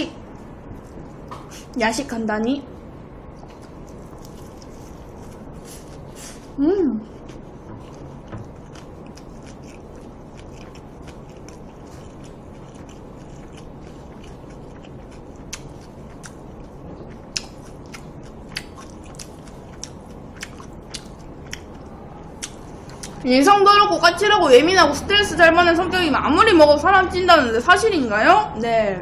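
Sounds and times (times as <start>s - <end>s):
person chewing food: 3.3s - 23.2s.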